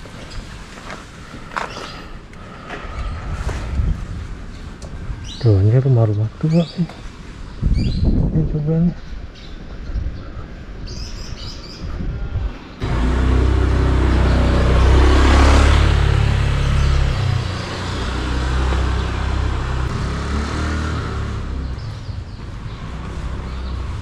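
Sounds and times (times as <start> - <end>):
vehicle engine running: 12.8 - 24.0.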